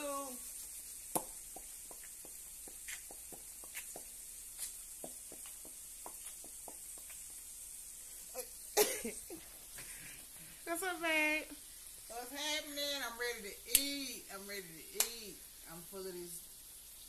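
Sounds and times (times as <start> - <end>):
faint steady hiss: 0.0 - 17.0
footsteps on a hard floor: 1.2 - 7.4.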